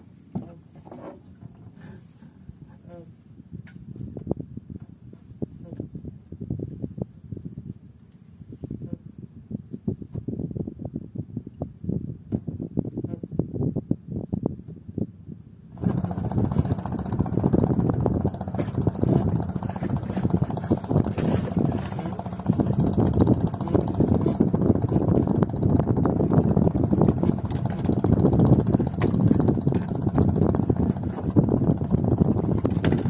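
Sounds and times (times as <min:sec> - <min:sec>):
boat engine rumbling: 0:00.0 - 0:06.3, 0:15.6 - 0:33.0.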